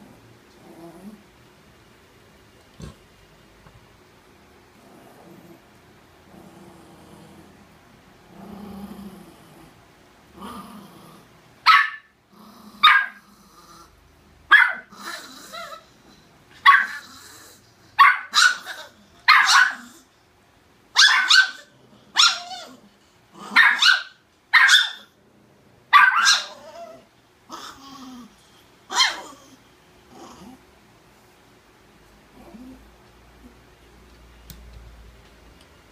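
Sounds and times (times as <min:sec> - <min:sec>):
small dog barking sharply: 0:11.7 - 0:12.1, 0:14.5 - 0:14.9, 0:19.3 - 0:19.8, 0:21.0 - 0:21.6, 0:23.6 - 0:25.1, 0:25.9 - 0:26.6.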